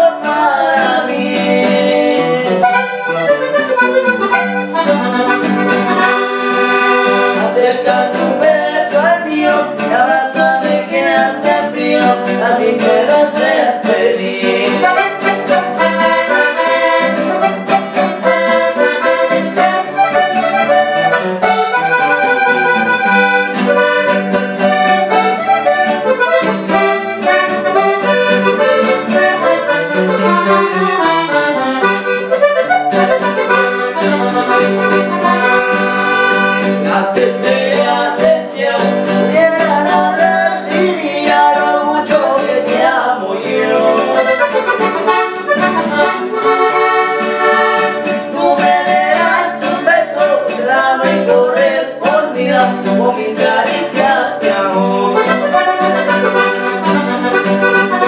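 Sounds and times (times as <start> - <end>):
accordion music with steady beat: 0.0 - 58.0.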